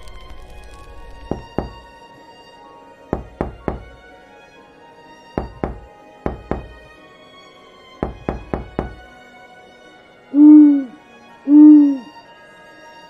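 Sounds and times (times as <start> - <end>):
soft background music: 0.0 - 13.0
quick sharp knocks: 5.4 - 6.8
owl hooting: 10.4 - 12.2.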